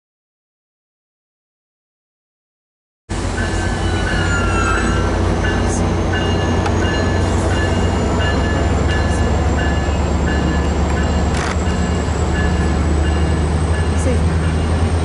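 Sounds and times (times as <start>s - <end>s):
diesel engine rumble: 5.0s - 15.0s.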